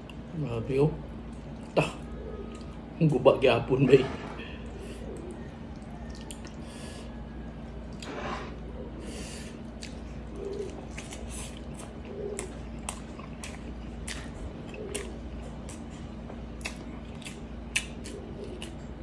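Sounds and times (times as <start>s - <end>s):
wet chewing and lip smacks: 5.0s - 8.1s, 9.6s - 19.0s.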